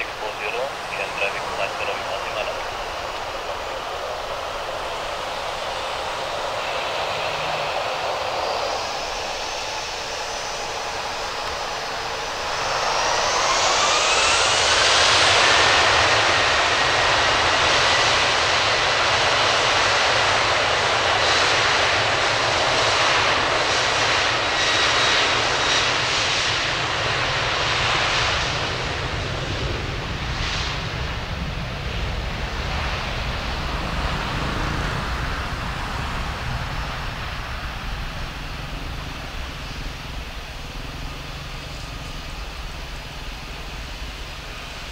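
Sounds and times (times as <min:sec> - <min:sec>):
jet engine whine: 0:00.0 - 0:44.9
jet engines roaring: 0:00.0 - 0:44.9.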